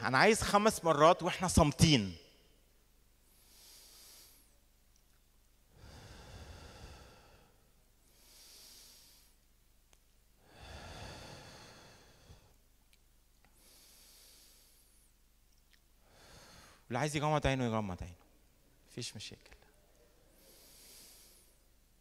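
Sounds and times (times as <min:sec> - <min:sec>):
man breathing deeply: 0:03.2 - 0:04.6, 0:05.7 - 0:09.4, 0:10.4 - 0:12.6, 0:13.6 - 0:15.2, 0:16.0 - 0:16.9, 0:20.3 - 0:21.7.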